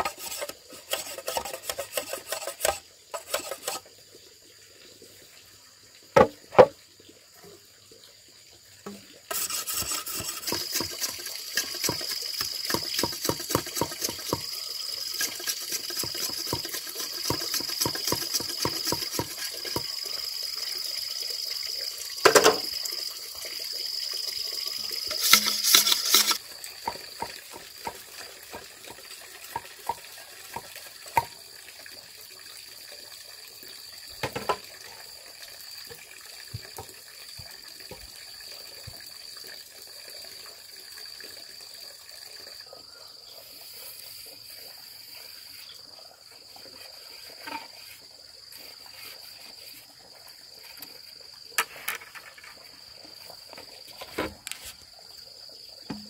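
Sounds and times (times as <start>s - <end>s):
water running and splashing: 0.0s - 56.0s
insect chirring: 8.9s - 31.4s.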